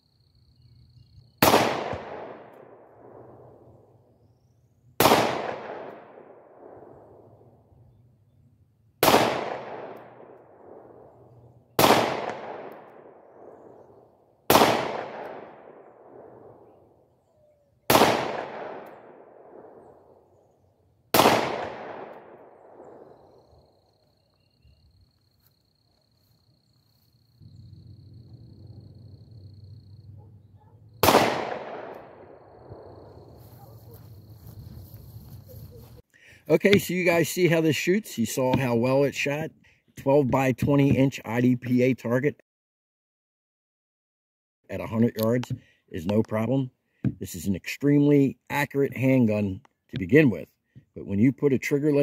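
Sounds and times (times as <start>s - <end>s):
pistol shots with echo: 1.4s - 3.4s, 5.0s - 6.9s, 9.0s - 11.1s, 11.8s - 13.8s, 14.5s - 16.6s, 17.9s - 20.0s, 21.1s - 23.2s, 31.0s - 32.9s.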